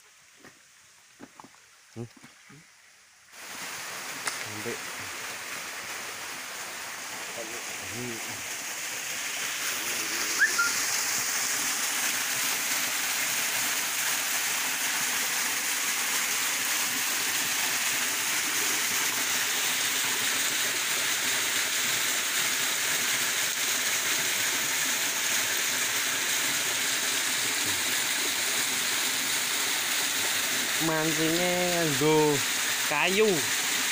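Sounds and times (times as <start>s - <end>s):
waterfall rushing: 3.4s - 33.9s
short high chirp: 10.3s - 10.8s.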